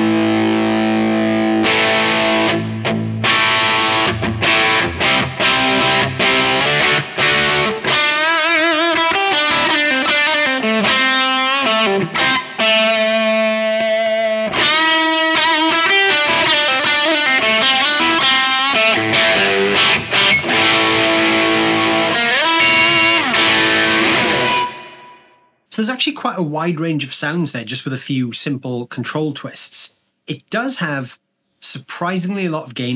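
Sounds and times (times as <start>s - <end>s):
overdriven electric guitar: 0.0s - 25.5s.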